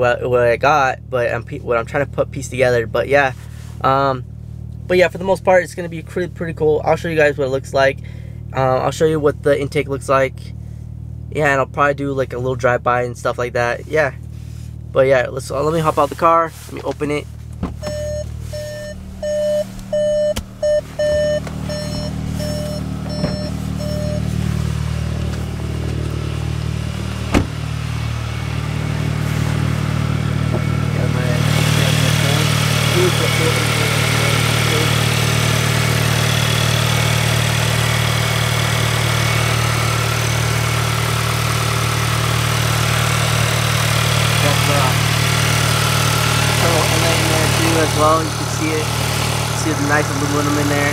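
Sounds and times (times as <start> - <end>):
car engine idling: 0.0 - 50.9
car warning chime beeping: 17.8 - 24.9.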